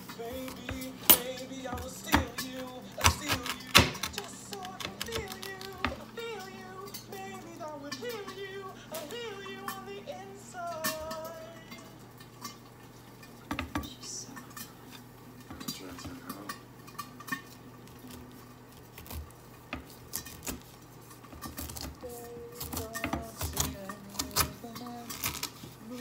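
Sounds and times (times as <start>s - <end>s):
knife cutting pineapple rind: 0.0s - 7.3s, 17.4s - 26.0s.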